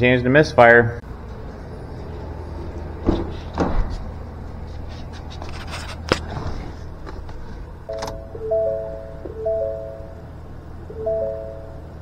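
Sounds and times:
steady low hum: 0.0s - 12.0s
footsteps on concrete floor: 2.8s - 7.5s.

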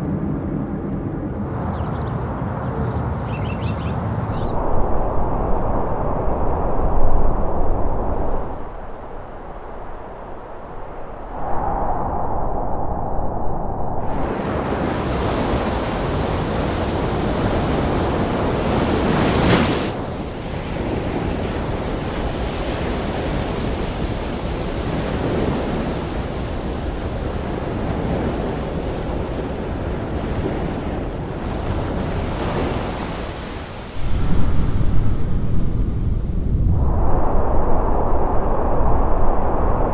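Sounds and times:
ocean wave breaking: 4.4s - 11.6s, 14.0s - 36.1s
low rumble: 4.4s - 14.4s, 34.0s - 39.9s.

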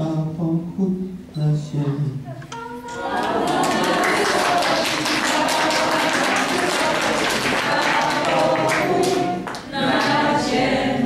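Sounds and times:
group singing a carol: 2.9s - 11.0s
people clapping: 3.0s - 10.5s.

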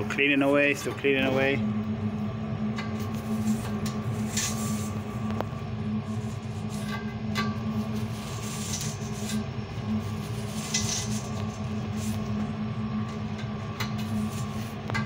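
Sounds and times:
steady low hum: 0.0s - 15.0s
bristle brush scrubbing metal fins: 2.8s - 5.3s, 6.0s - 12.4s, 13.8s - 15.0s.

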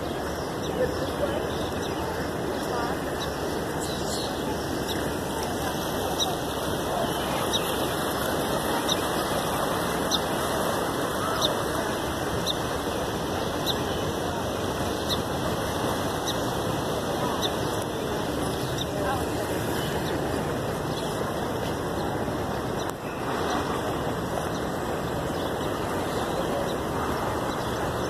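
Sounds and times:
floodwater rushing: 0.0s - 28.0s.

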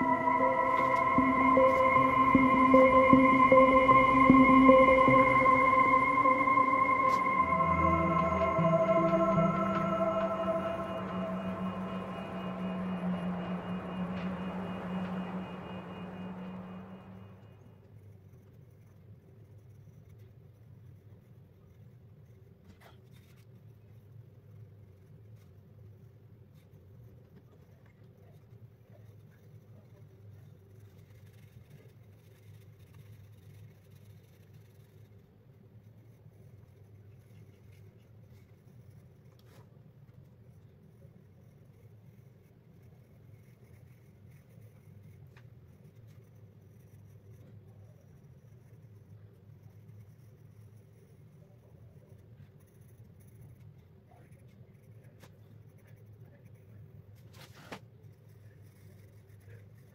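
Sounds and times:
steady low hum: 0.0s - 17.6s.

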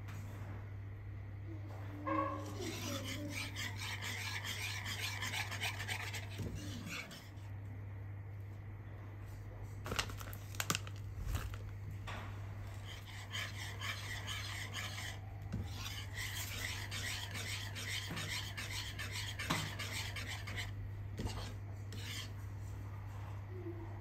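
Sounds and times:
steady low hum: 0.0s - 24.0s
whisk scraping against pan: 2.1s - 7.5s, 12.7s - 22.4s.

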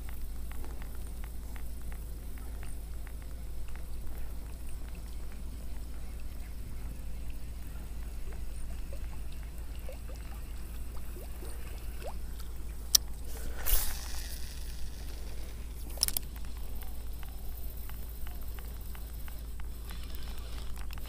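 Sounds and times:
reel spool spinning: 0.0s - 21.0s
fishing reel clicking: 12.9s - 16.9s, 17.8s - 21.0s.

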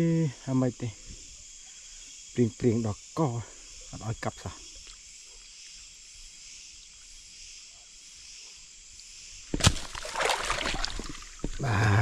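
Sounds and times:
night insects chirring: 0.0s - 12.0s.

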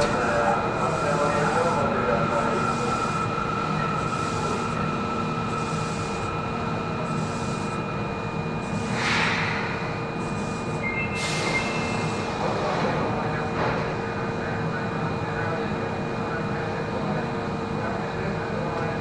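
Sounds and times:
electrical whine: 0.0s - 12.2s
train wheel and rail rumble: 0.0s - 19.0s.

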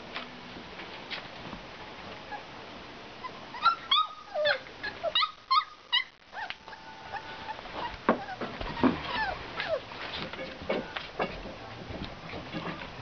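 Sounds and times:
puppies whimpering and yipping: 3.2s - 10.1s.

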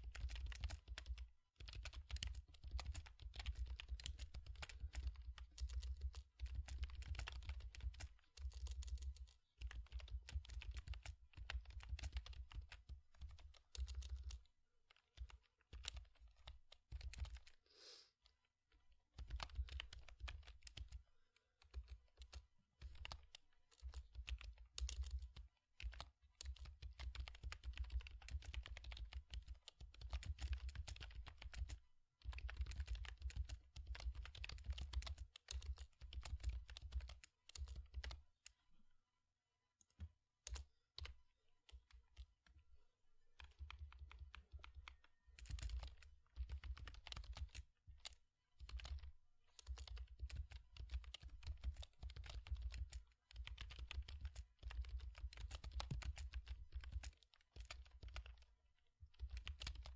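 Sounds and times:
fast typing on a computer keyboard: 0.0s - 17.6s, 19.1s - 38.6s, 39.8s - 42.6s, 43.4s - 59.9s.

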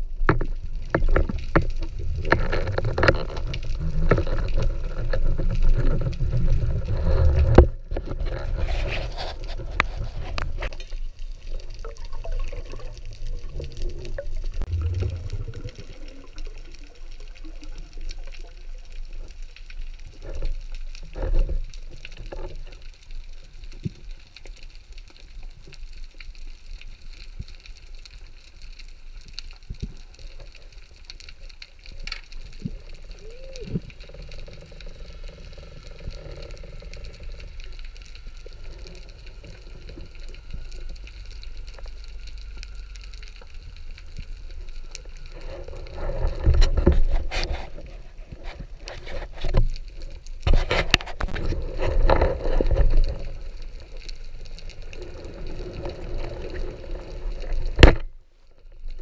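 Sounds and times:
rumbling gurgling water: 0.0s - 59.0s
underwater rush of water: 0.0s - 59.0s.

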